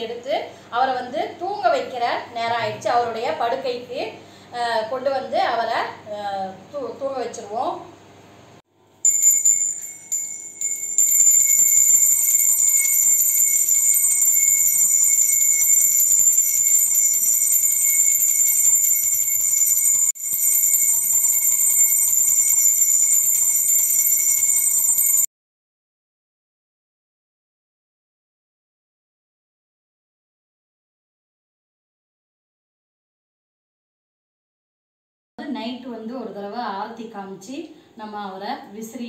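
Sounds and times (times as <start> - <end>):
hand bell ringing: 9.1 - 25.3.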